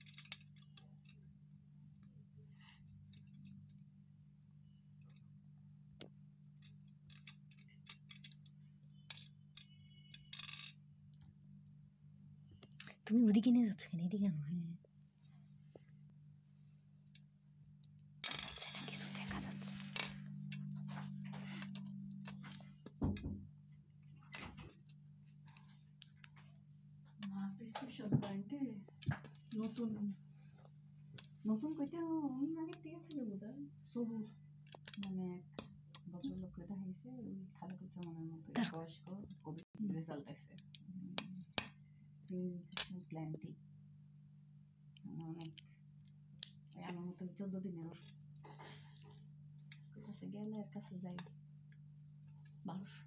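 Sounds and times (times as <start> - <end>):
plastic toy bricks clicking: 0.0 - 1.2, 6.6 - 8.5, 34.6 - 36.0
steady low hum: 0.0 - 53.0.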